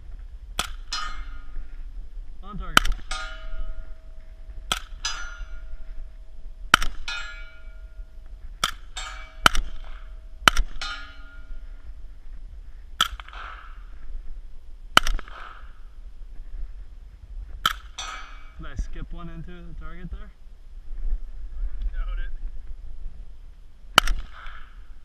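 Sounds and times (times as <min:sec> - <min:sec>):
steel target ringing: 0:00.8 - 0:01.6, 0:02.7 - 0:11.8, 0:17.9 - 0:18.6
suppressed rifle shots: 0:02.7 - 0:03.8, 0:06.7 - 0:07.4, 0:08.6 - 0:11.0, 0:14.9 - 0:15.8, 0:23.9 - 0:24.8.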